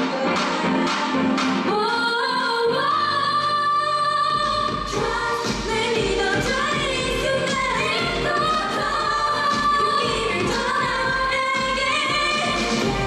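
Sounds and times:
pop dance backing track: 0.0 - 13.0
woman singing: 0.0 - 13.0
heavy bass beat: 4.4 - 13.0.

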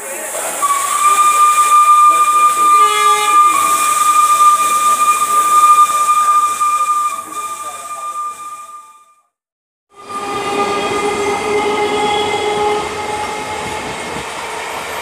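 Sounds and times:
steam hissing: 0.0 - 8.8
steam locomotive whistle: 0.4 - 9.3, 9.9 - 14.2
lower whistle tone: 0.6 - 9.3, 10.0 - 14.2.

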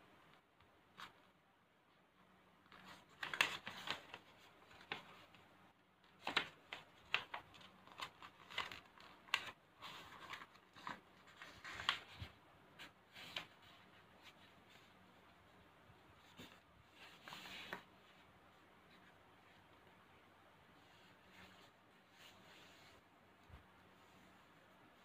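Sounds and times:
paper being folded and creased: 2.6 - 5.4, 6.0 - 15.3, 16.1 - 18.3.

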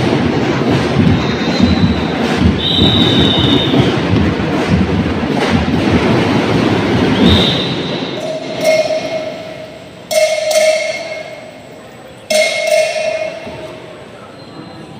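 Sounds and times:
crowd and band din: 0.0 - 14.1
bell-like metal strikes: 8.0 - 14.0.

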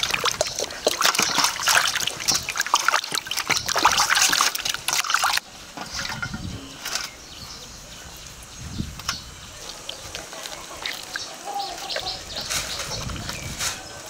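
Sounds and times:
hands scrubbing chicken: 0.0 - 6.1, 9.5 - 14.0
water splashing in metal basin: 0.0 - 7.2, 8.8 - 13.6.

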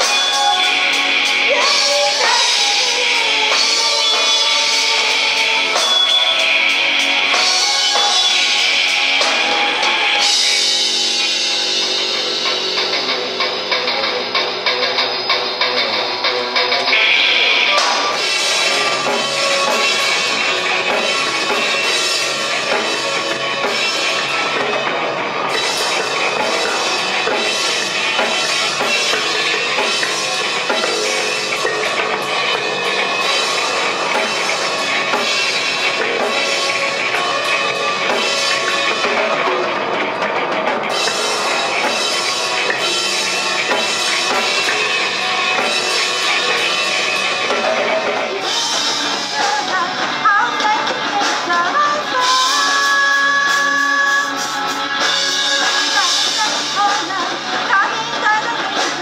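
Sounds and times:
bass guitar: 0.0 - 59.0
drum kit: 0.0 - 59.0
electric guitar: 0.0 - 59.0.

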